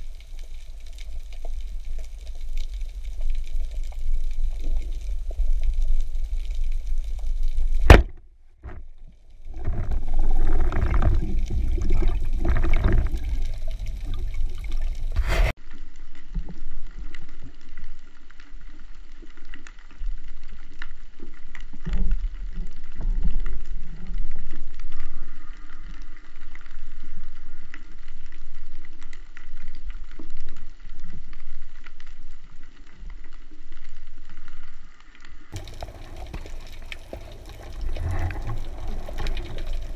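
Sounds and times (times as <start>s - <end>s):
churning water underwater: 0.0s - 39.9s
underwater hiss with bubbling: 35.6s - 39.9s.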